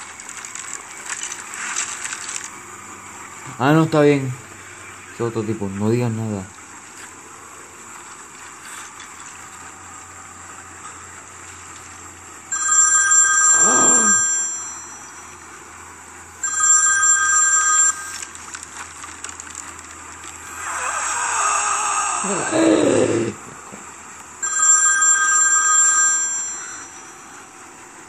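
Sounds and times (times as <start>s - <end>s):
phone ringtone: 12.5s - 15.7s, 16.4s - 18.4s, 24.4s - 27.6s.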